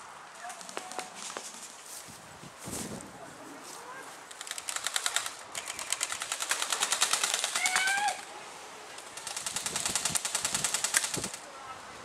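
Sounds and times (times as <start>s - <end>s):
airsoft guns firing bursts: 4.4s - 8.0s, 9.2s - 11.4s.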